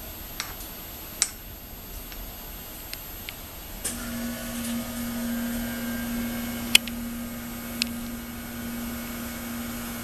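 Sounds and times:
metal lathe motor hum: 0:03.9 - 0:10.0.

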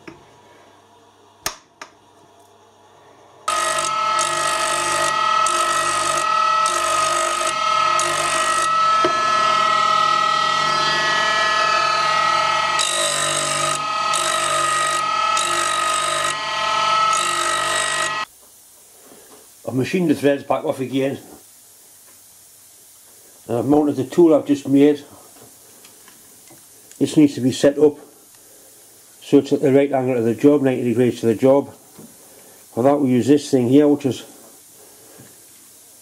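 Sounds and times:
grinder whining: 0:03.5 - 0:18.3
tool grinding hiss: 0:03.5 - 0:19.5.

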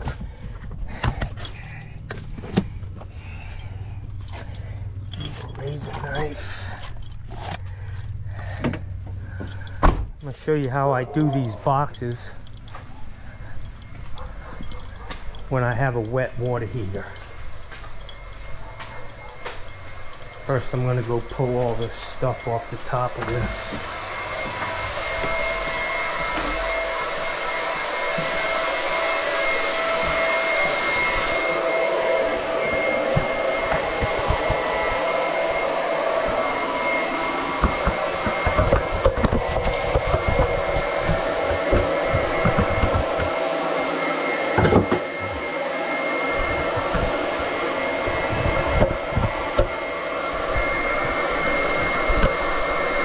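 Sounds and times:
electric motor whining hum: 0:00.0 - 0:53.0
knocks and rattles of parts: 0:04.0 - 0:28.4, 0:37.4 - 0:43.4.

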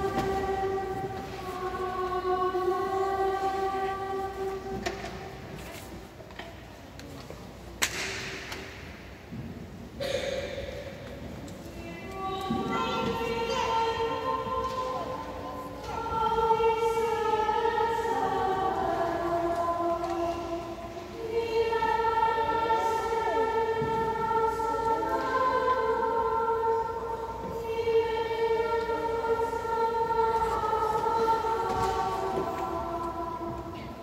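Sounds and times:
choir chanting in unison: 0:00.0 - 0:05.6, 0:12.0 - 0:34.0.

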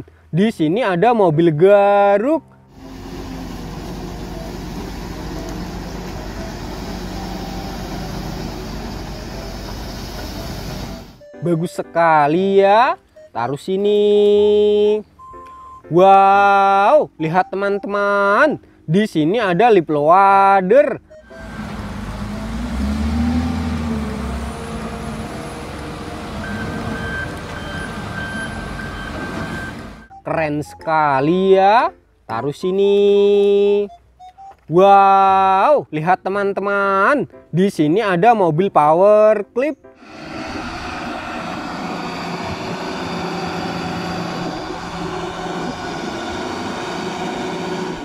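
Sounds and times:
wheel loader diesel engine under load: 0:02.7 - 0:11.3, 0:21.0 - 0:30.2, 0:40.0 - 0:48.0
reversing alarm beeping: 0:04.1 - 0:09.6, 0:13.1 - 0:13.6, 0:14.4 - 0:15.9, 0:21.0 - 0:23.4, 0:26.4 - 0:30.9, 0:40.5 - 0:48.0.

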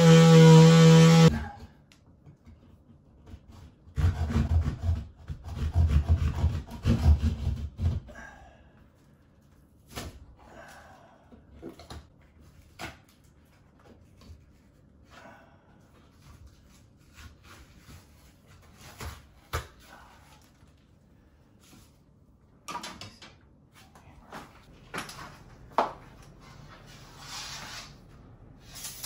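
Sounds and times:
hand saw rasping through ceiling: 0:00.0 - 0:01.6, 0:03.2 - 0:08.2.

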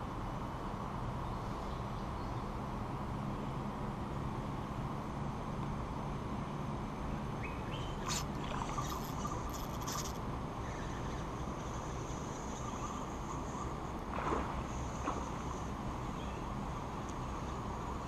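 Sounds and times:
low rumble of wind: 0:00.0 - 0:18.0
birds chirping: 0:07.4 - 0:11.3
high insect whine: 0:07.9 - 0:13.8.

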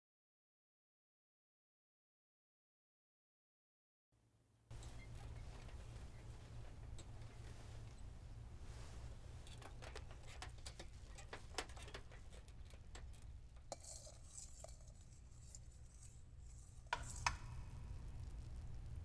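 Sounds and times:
low steady hum: 0:04.7 - 0:19.0.

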